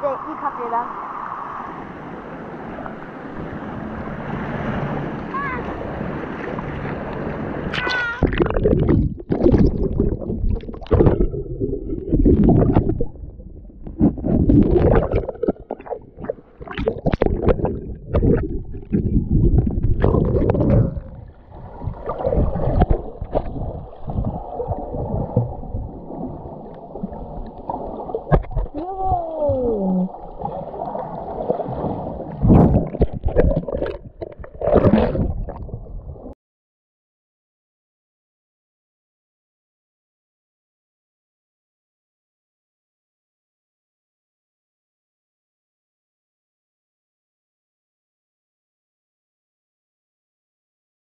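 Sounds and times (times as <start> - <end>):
underwater gurgling and sloshing: 0.0 - 36.4.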